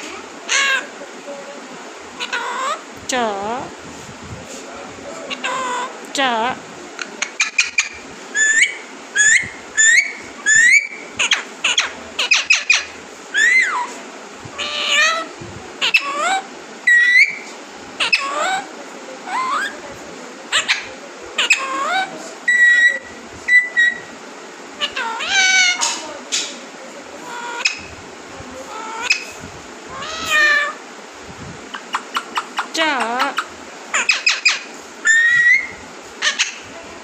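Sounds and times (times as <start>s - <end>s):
parakeet whistling calls: 7.2s - 13.9s, 14.5s - 18.6s, 19.2s - 19.8s, 20.5s - 24.1s, 27.3s - 28.0s, 28.7s - 30.8s, 31.7s - 36.6s.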